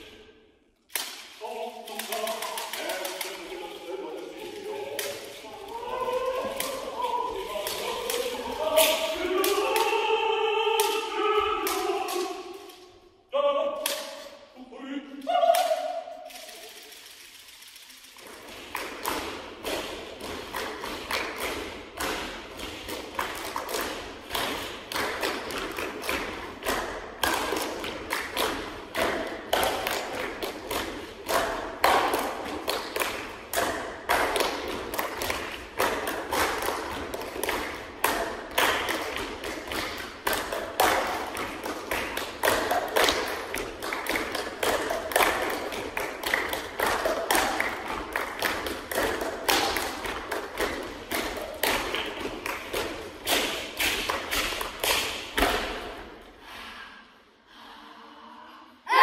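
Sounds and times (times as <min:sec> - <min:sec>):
fast percussive taps and thumps: 0:18.2 - 0:55.9.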